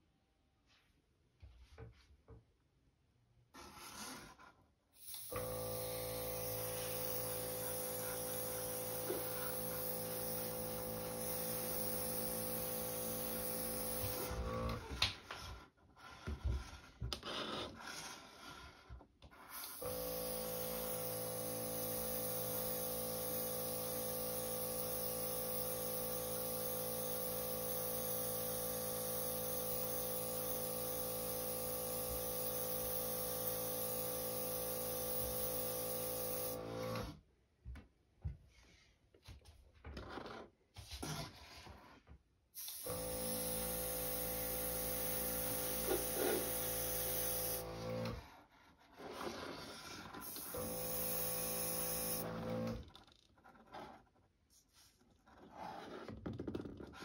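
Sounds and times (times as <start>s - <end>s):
airbrush compressor humming: 5.0s - 14.9s, 19.5s - 37.1s, 42.6s - 48.2s, 50.2s - 52.8s.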